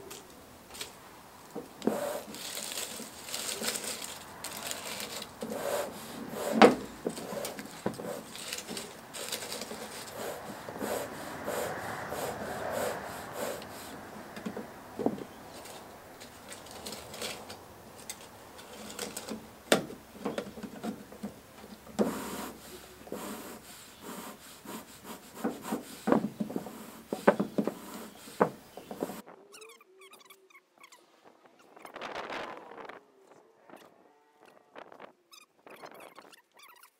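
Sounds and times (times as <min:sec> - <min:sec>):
dry leaves rustling and crackling: 0:00.0 - 0:01.2, 0:01.8 - 0:10.7, 0:15.3 - 0:19.6.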